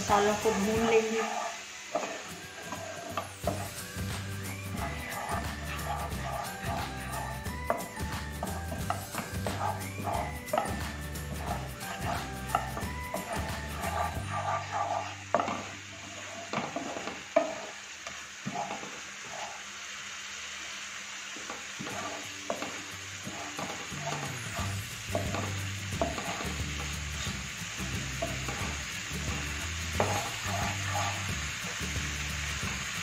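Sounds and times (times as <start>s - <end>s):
wooden spatula scraping pan: 0.0s - 17.8s, 18.4s - 19.6s, 21.5s - 27.4s, 28.1s - 31.4s
paste sizzling in frying pan: 0.0s - 33.0s.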